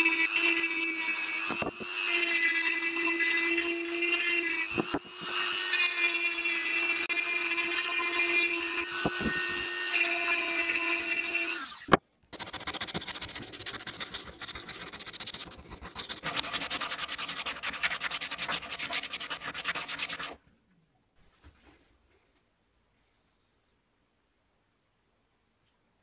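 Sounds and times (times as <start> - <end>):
rotary tool whining: 0.0 - 16.8
sandpaper scraping wood: 12.4 - 20.4.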